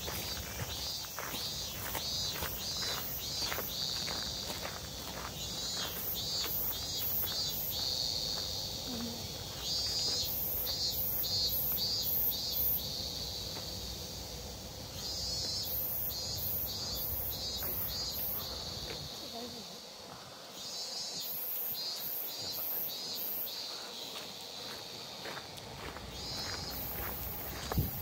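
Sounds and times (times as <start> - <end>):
cicadas singing: 0.0 - 28.0.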